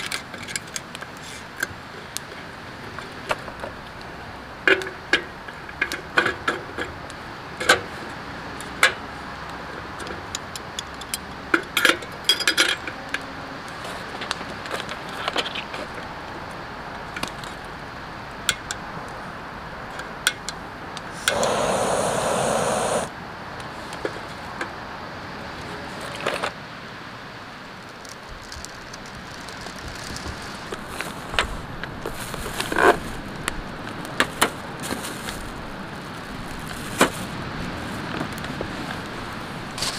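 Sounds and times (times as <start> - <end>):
steady hiss: 21.1 - 23.1.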